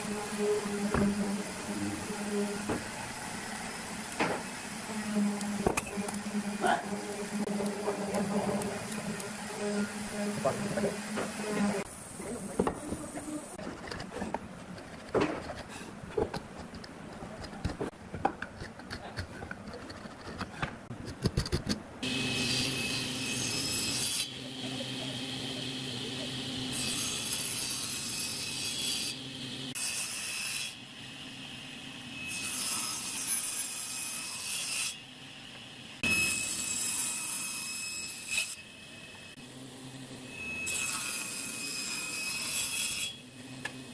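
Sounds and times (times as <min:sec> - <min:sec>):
table saw cutting wood: 0:00.0 - 0:11.9, 0:22.0 - 0:35.0, 0:36.0 - 0:43.9.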